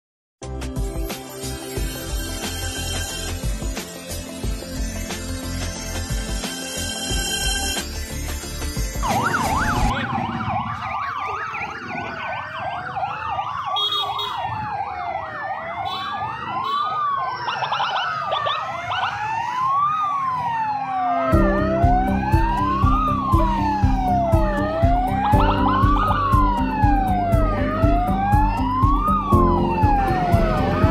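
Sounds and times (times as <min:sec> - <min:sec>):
intro music: 0:00.4 - 0:10.6, 0:20.9 - 0:30.9
loud music with heavy beat: 0:00.5 - 0:06.5, 0:21.4 - 0:30.9
police sirens wailing: 0:09.0 - 0:30.9.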